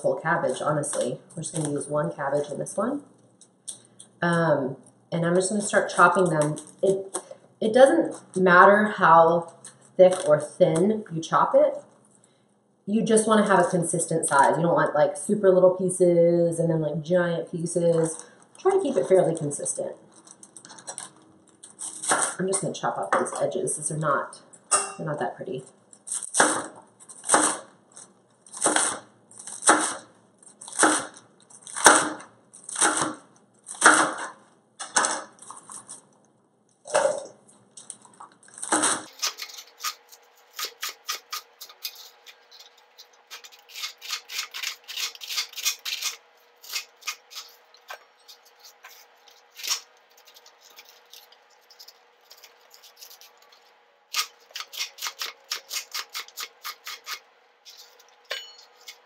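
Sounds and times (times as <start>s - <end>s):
knife chopping on plastic board: 31.8s - 33.2s, 33.8s - 35.4s.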